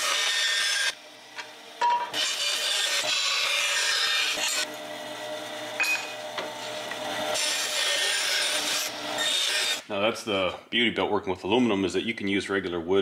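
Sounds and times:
bandsaw cutting metal: 0.0 - 9.9.

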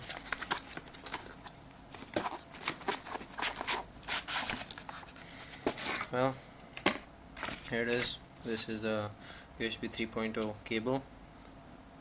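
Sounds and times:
cardboard box rustling: 0.0 - 6.1.

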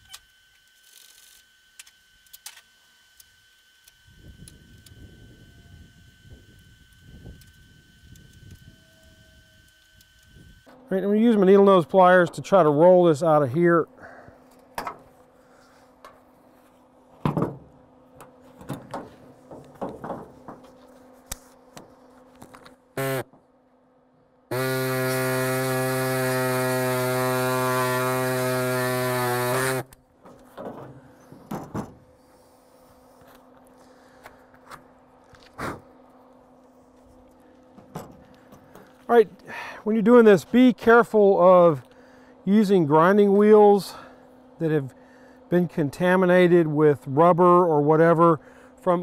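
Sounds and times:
loud steady pitched drone: 3.8 - 17.1.

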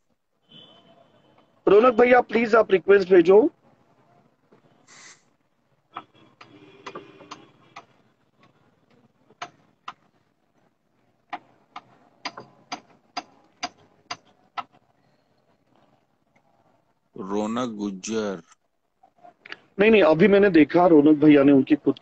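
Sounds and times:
sharp clicks and taps: 5.9 - 10.1, 11.2 - 14.8.

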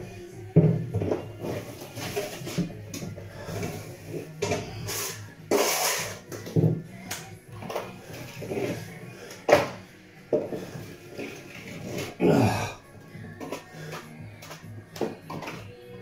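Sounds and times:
plastering tools scraping and knocking: 0.5 - 12.2, 13.1 - 15.8.

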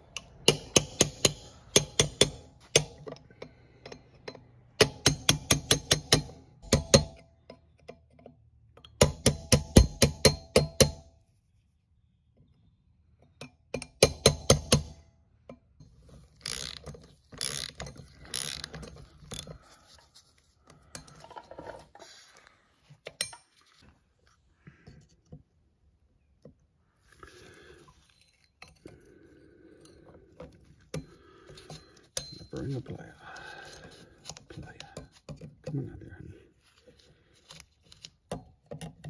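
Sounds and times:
tools clinking and scraping on metal: 0.0 - 9.0, 13.2 - 23.9, 28.0 - 36.1
screwdriver tapping on metal: 0.0 - 11.1, 13.2 - 15.9, 30.4 - 35.8.

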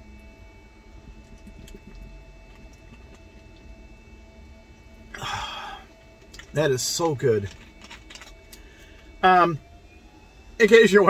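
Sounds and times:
low steady background hum: 0.0 - 11.0
person swallowing: 1.3 - 3.4, 5.2 - 5.8.

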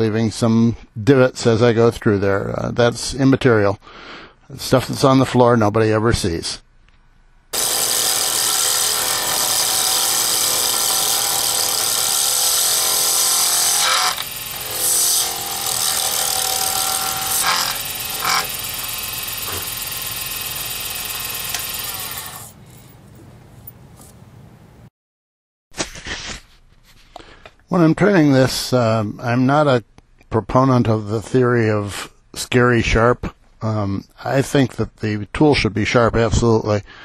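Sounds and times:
lathe whine with tool cutting plastic: 7.6 - 22.6.

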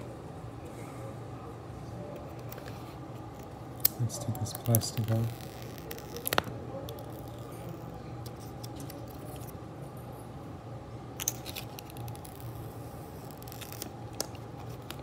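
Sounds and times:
steady low hum: 0.0 - 15.0
plastic film crinkling: 4.3 - 7.8.

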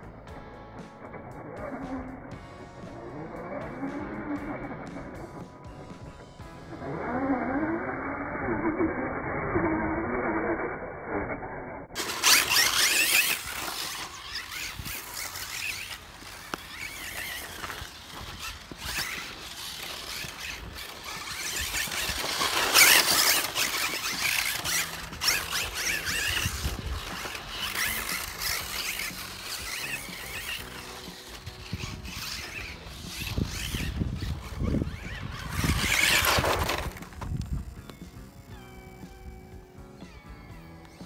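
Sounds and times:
tyres on loose dirt: 0.0 - 41.0
rc car motor whine: 1.0 - 5.4, 6.6 - 41.0.

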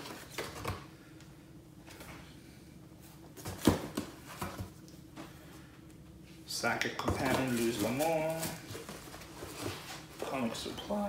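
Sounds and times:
books knocking against box: 3.4 - 4.7, 7.0 - 10.0.

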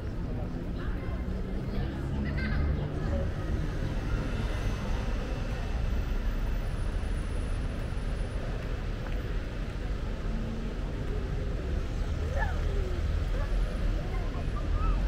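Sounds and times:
city traffic rumble and hiss: 0.0 - 15.0.

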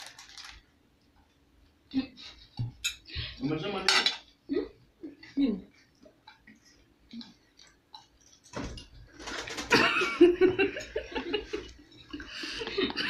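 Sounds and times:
young woman laughing: 9.7 - 11.7.

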